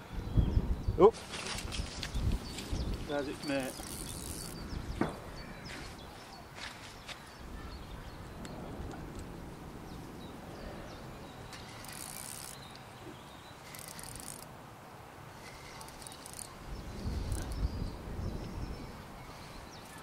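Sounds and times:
wind buffeting microphone: 0:00.0 - 0:20.0
fishing reel whirring: 0:03.6 - 0:04.6, 0:11.5 - 0:12.8, 0:13.6 - 0:14.5, 0:15.4 - 0:17.6.

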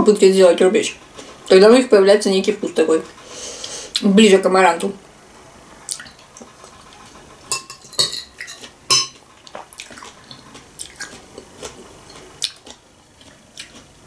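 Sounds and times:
spoon clinking on glass bowl: 0:07.5 - 0:09.2.

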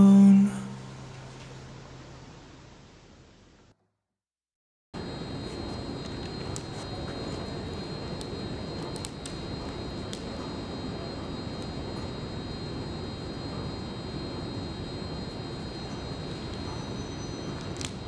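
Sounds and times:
high-pitched whine: 0:00.0 - 0:02.9, 0:05.0 - 0:18.0
metro station noise: 0:05.0 - 0:18.0.

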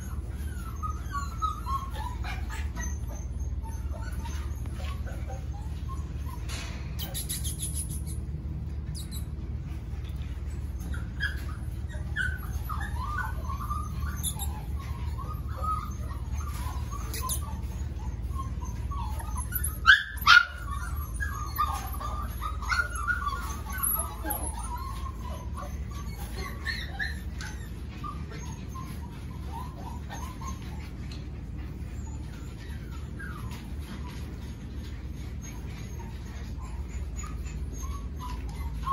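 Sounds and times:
puppies yipping and whining: 0:00.0 - 0:38.9
puppy barking: 0:10.9 - 0:30.8.

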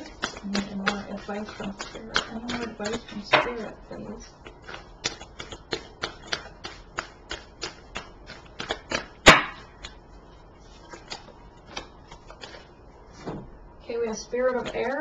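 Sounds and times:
cards being shuffled: 0:00.0 - 0:03.3, 0:04.4 - 0:13.4.

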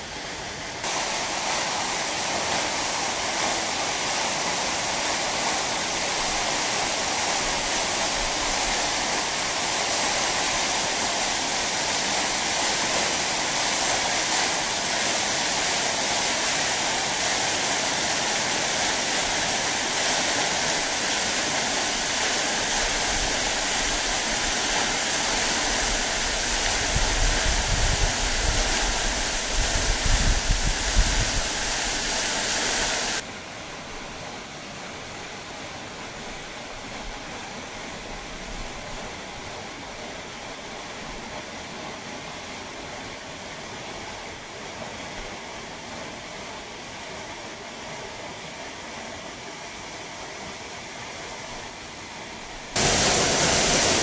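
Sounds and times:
waterfall roaring: 0:00.0 - 0:41.5, 0:52.5 - 0:54.0.

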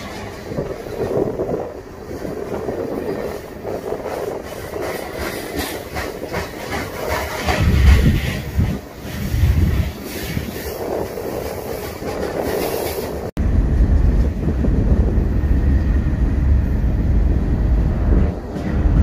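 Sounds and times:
train wheels clicking over rail joints: 0:00.0 - 0:13.3
deep rumble: 0:13.3 - 0:19.0.

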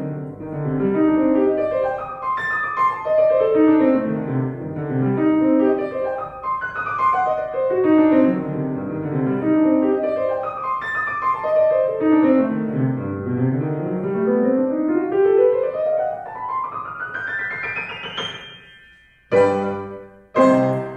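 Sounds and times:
loud piano chord: 0:17.5 - 0:20.9.

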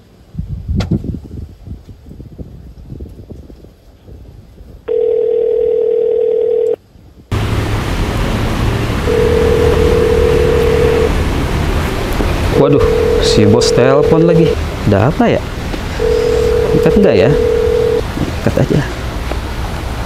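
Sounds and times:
telephone ringback tone: 0:04.9 - 0:06.8, 0:09.1 - 0:11.1, 0:12.6 - 0:14.6, 0:16.0 - 0:18.0.

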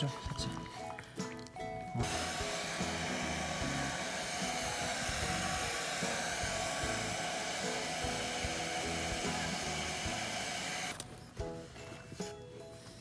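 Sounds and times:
light background music: 0:00.0 - 0:13.0
hair dryer running: 0:02.0 - 0:11.0.

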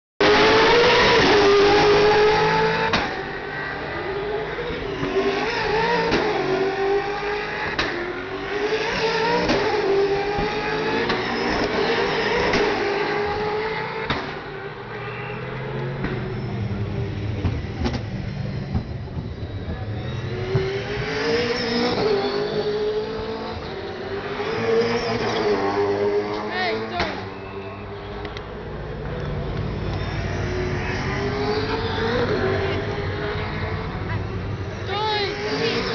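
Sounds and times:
racing cars passing by: 0:00.2 - 0:35.9.

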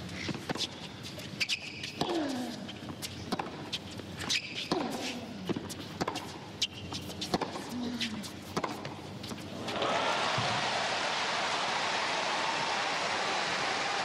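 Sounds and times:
tennis ball bouncing: 0:01.8 - 0:09.8
racket striking tennis ball: 0:03.3 - 0:06.4, 0:07.2 - 0:07.7, 0:08.5 - 0:09.0.

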